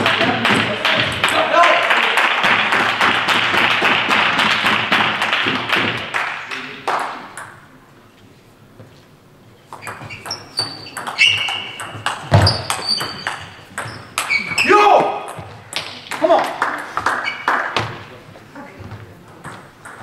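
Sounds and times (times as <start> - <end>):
people clapping: 0.0 - 7.4, 15.8 - 18.2
voices in a sports hall: 0.0 - 20.0
shoe squeaks on floor: 9.6 - 14.8, 17.1 - 17.9.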